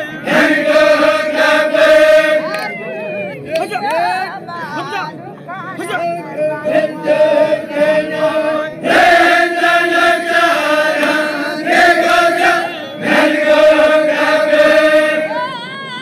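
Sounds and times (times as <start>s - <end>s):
men chanting in unison: 0.0s - 2.5s, 6.6s - 15.3s.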